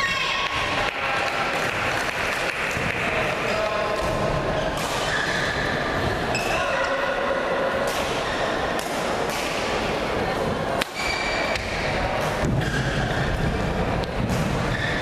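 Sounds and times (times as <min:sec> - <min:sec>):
murmur of spectators: 0:00.0 - 0:15.0
racket hitting shuttlecock: 0:07.8 - 0:09.8, 0:10.8 - 0:14.8
shoes squeaking on court floor: 0:11.0 - 0:11.7, 0:14.7 - 0:15.0.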